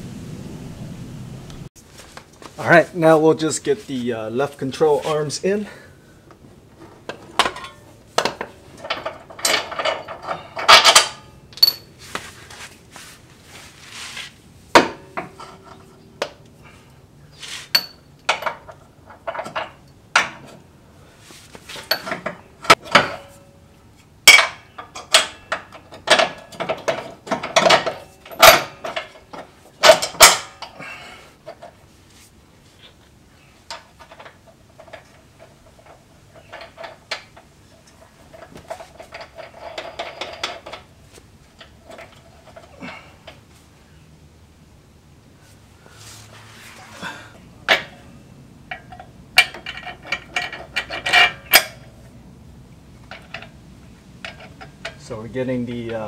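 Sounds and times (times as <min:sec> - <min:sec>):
metal clanks and knocks: 0:06.8 - 0:11.9, 0:14.7 - 0:16.4, 0:17.7 - 0:20.6, 0:21.7 - 0:23.6, 0:24.2 - 0:31.8, 0:33.7 - 0:40.9, 0:41.5 - 0:43.4, 0:47.6 - 0:52.0, 0:53.0 - 0:53.6, 0:54.2 - 0:55.2.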